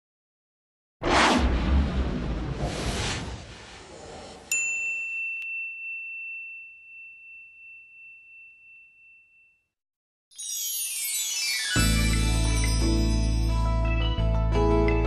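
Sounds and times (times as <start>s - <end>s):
whoosh: 1.0s - 4.5s
bright chime ding: 4.5s - 9.6s
music: 10.3s - 15.0s.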